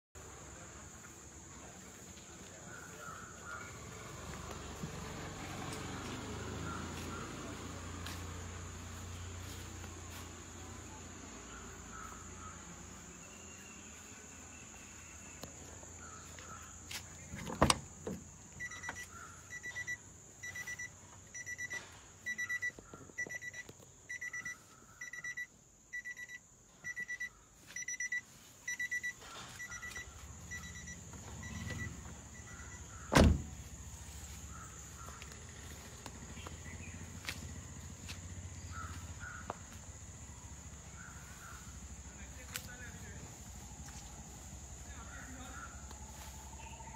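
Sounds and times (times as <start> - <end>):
electronic warning beeper: 18.6 - 32.9.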